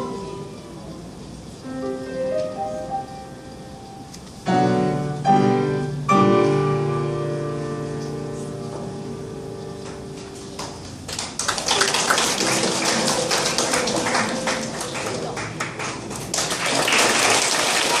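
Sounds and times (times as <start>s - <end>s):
piano chord: 0.0s - 0.7s, 1.6s - 10.9s
audience clapping: 10.5s - 18.0s.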